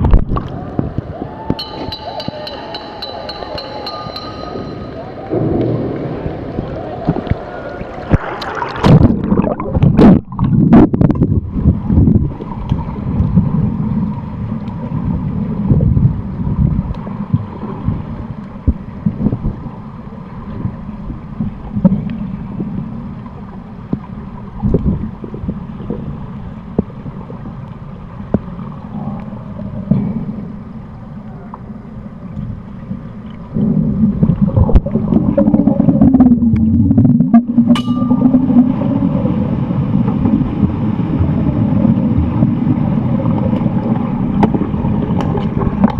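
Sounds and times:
underwater rumble and gurgle: 0:00.0 - 0:01.6, 0:04.6 - 0:45.9
pool water splashing: 0:00.0 - 0:45.9
dull knocks underwater: 0:08.1 - 0:12.4.

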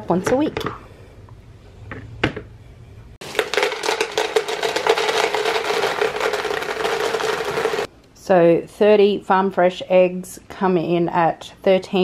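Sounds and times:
cereal pattering into container: 0:03.2 - 0:07.9.

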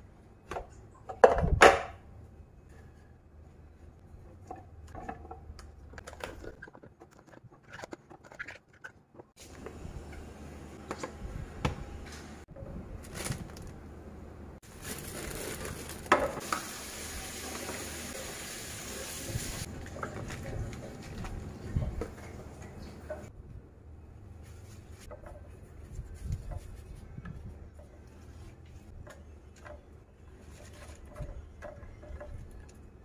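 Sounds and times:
steady hiss: 0:16.4 - 0:19.7.

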